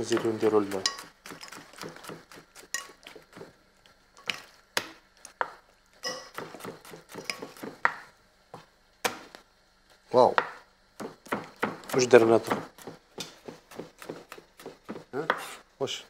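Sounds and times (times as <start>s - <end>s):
knife chopping on wooden board: 0.0s - 3.5s, 6.3s - 8.1s, 10.3s - 15.6s
spoon scraping glass bowl: 6.0s - 6.3s.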